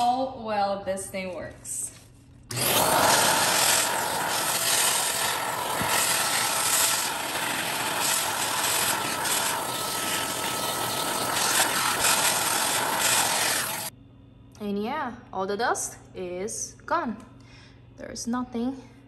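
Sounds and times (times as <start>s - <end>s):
vacuum cleaner running: 2.5s - 13.9s.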